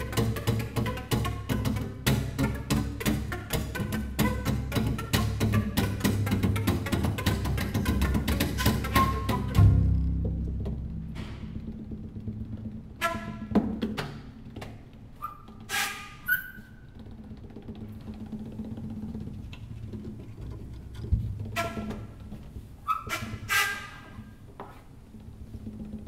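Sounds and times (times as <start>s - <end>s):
short pitched notes: 0.0s - 13.5s
percussive hits: 0.0s - 14.3s
low steady drone: 9.5s - 12.9s.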